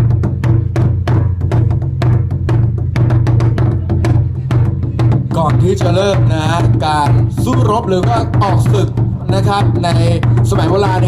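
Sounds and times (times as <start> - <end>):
barrel drums beaten fast: 0.0 - 11.0.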